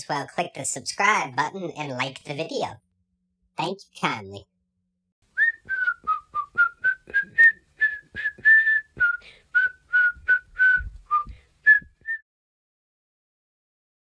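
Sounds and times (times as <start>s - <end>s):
person whistling a tune: 5.4s - 12.2s.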